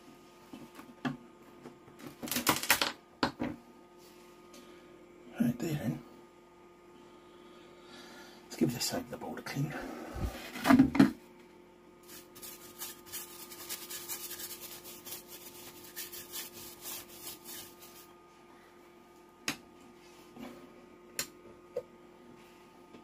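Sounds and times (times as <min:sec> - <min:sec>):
scrubbing a circuit board: 0:12.0 - 0:18.1.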